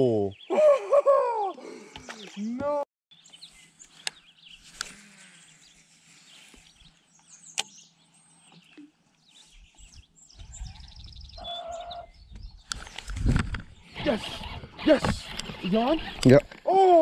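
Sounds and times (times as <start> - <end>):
small birds chirping: 0.0 - 16.7
sharp clicks: 12.3 - 16.6.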